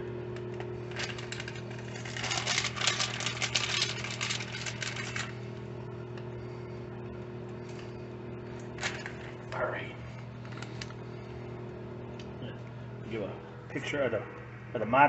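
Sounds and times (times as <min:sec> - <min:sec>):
low electrical hum: 0:00.0 - 0:15.0
cheese rustling: 0:00.7 - 0:05.5.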